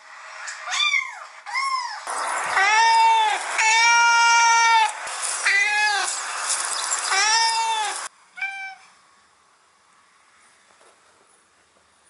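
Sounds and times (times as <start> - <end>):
recorded cat meows: 7.1 - 8.9.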